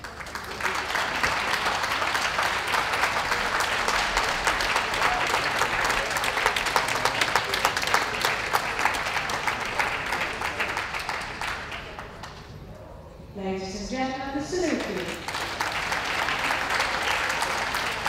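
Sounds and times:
crowd clapping: 0.0s - 12.7s, 14.6s - 18.0s.

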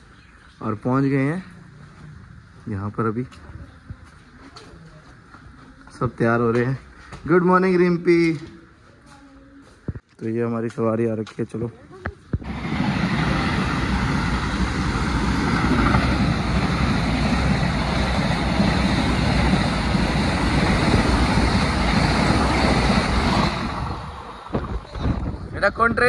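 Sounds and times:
wind buffeting microphone: 12.2s - 26.0s
electric train passing at speed: 12.4s - 26.0s.

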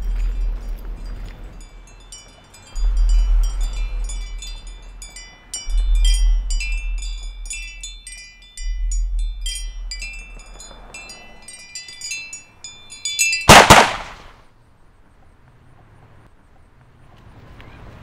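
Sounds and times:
high bell-like chimes: 0.0s - 13.5s
low bass notes: 2.7s - 10.6s.

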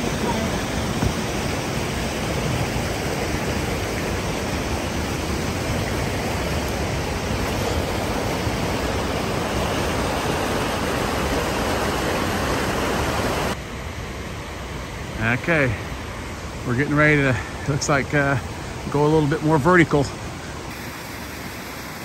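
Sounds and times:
creek water rushing over rocks: 0.0s - 22.0s.

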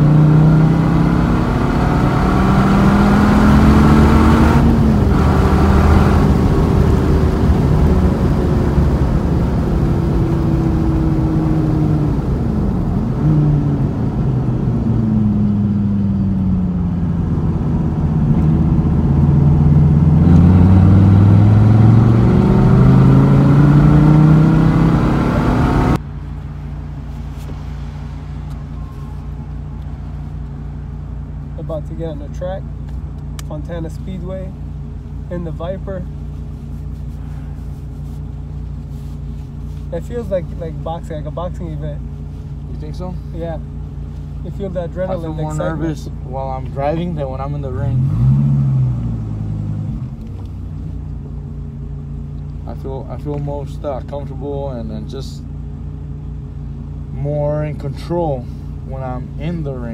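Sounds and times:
sports car engine revving: 0.0s - 31.6s, 32.6s - 59.9s.

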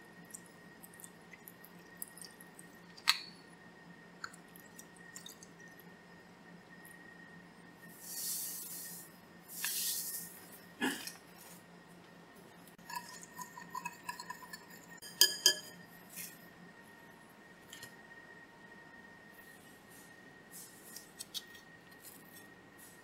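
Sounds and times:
soft hissing: 7.9s - 10.5s
utensil clinking against glass bowl: 12.8s - 15.8s.

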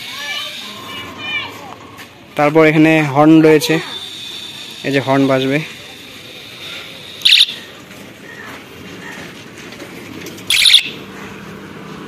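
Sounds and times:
electronic bicycle horn beeps: 7.2s - 7.6s, 10.5s - 11.0s.

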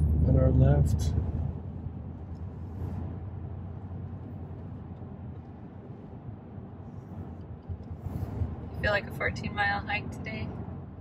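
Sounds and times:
car cabin road and engine noise: 0.0s - 11.0s.

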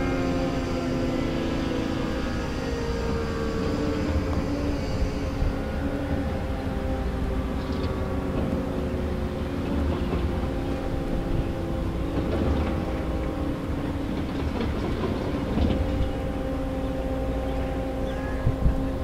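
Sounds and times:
warning siren steady tone: 0.0s - 19.0s.

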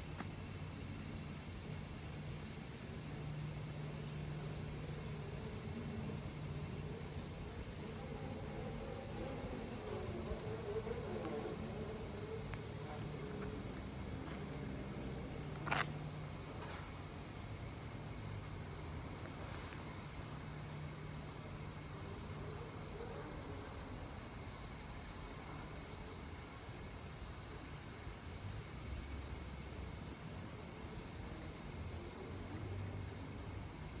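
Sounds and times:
insects trilling: 0.0s - 34.0s.

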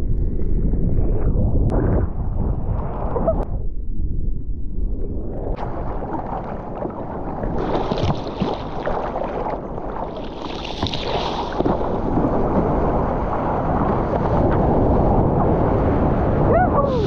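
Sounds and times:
water splashing: 5.6s - 17.0s.

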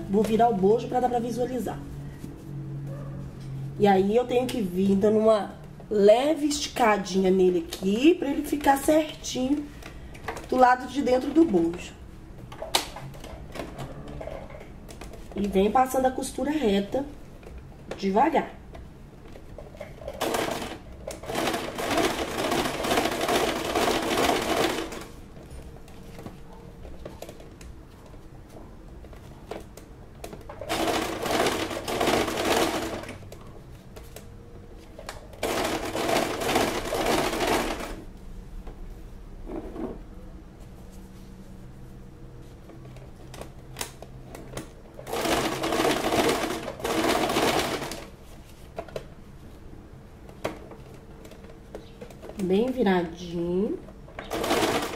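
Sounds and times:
sewing machine stitching: 20.1s - 25.1s, 30.6s - 33.2s, 35.4s - 38.0s, 45.0s - 48.1s, 54.2s - 54.9s.

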